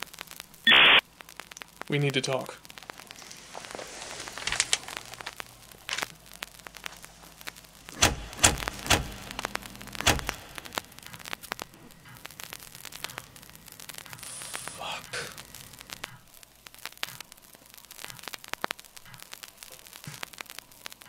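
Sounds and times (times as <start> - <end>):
crackling hiss with clicks: 0.0 - 21.0
heavy thumps: 6.8 - 13.0.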